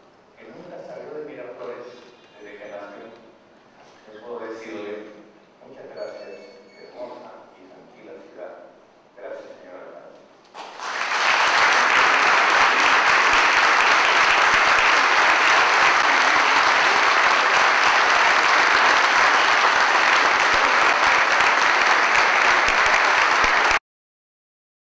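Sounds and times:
audience applauding: 10.6s - 23.8s.

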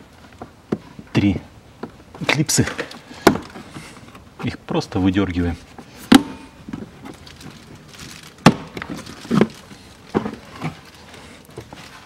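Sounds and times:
sharp plastic snaps and knocks: 6.1s - 11.8s.

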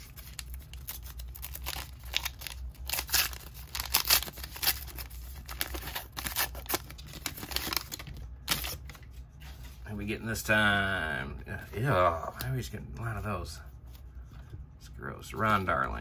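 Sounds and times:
foil wrapper tearing and crinkling: 0.0s - 8.8s.

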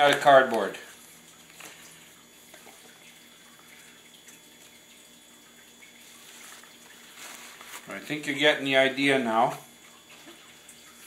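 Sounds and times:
low steady hum: 0.0s - 11.0s
wet cardboard rustling: 6.0s - 8.3s.

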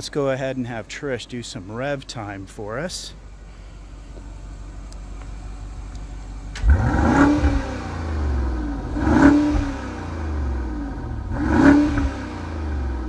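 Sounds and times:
car engine revving: 5.5s - 13.0s.

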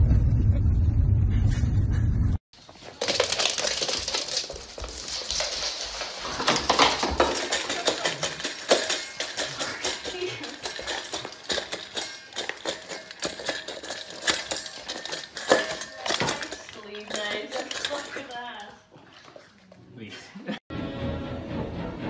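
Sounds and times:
dog crunching kibble: 2.6s - 19.5s.

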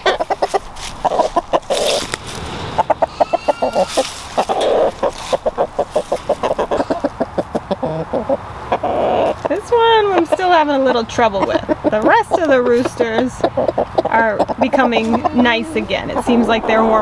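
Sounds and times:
roosters clucking: 0.0s - 17.0s
rooster calls: 2.7s - 9.4s.

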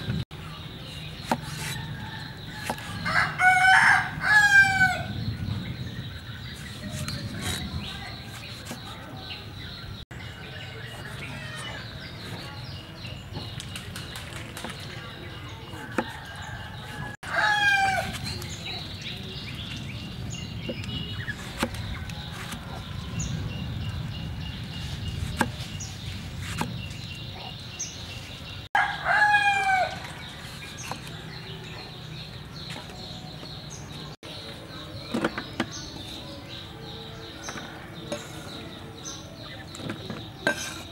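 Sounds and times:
rooster crowing: 28.8s - 30.0s.

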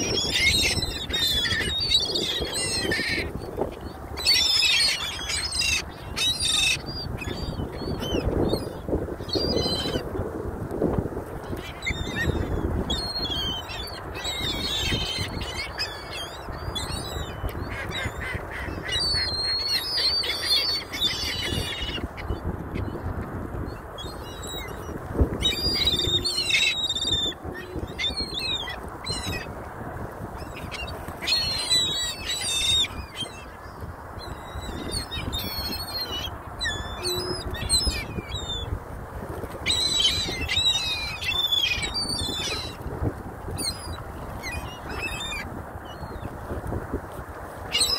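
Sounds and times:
gulls and geese calling: 0.0s - 10.1s, 11.5s - 38.8s, 39.4s - 47.9s.

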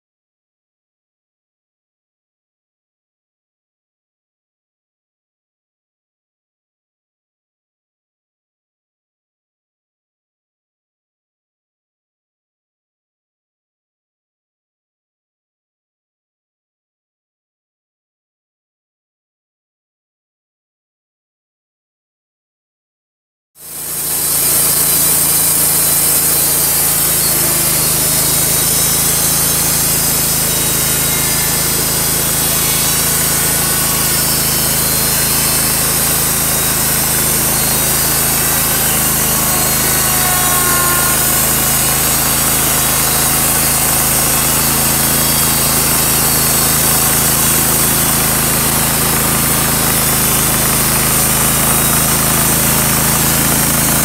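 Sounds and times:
band saw blade cutting log: 23.6s - 54.0s
sawmill engine running: 23.6s - 54.0s.

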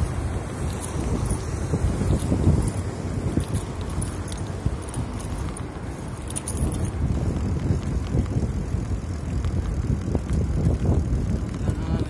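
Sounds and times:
light metallic rattle: 0.0s - 7.8s
bicycle tyres on paving: 0.0s - 12.0s
wind on microphone: 0.0s - 12.0s.

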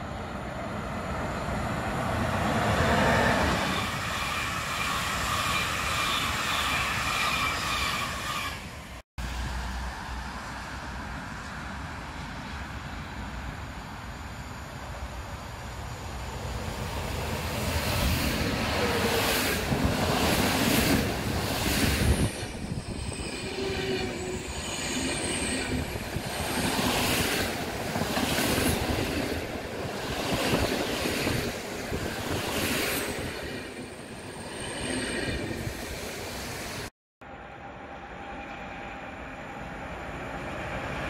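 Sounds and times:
wheel squeals: 3.6s - 8.8s.

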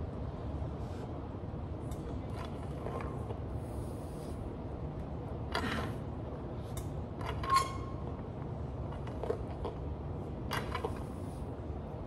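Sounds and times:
barbell and bench creaking: 7.2s - 8.2s.

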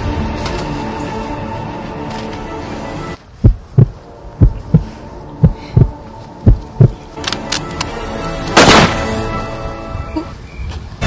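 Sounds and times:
heartbeat thumps: 3.4s - 7.0s.

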